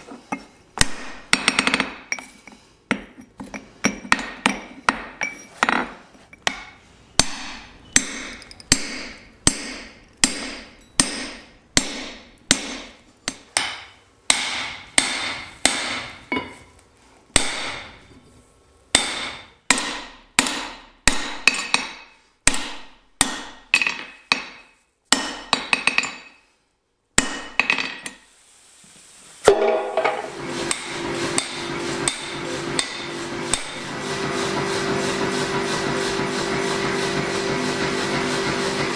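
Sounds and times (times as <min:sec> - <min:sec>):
hammer striking steel on anvil: 0:06.4 - 0:16.6, 0:17.4 - 0:18.0, 0:18.9 - 0:26.4, 0:27.2 - 0:28.2, 0:29.5 - 0:34.0
power hammer humming: 0:29.7 - 0:38.9.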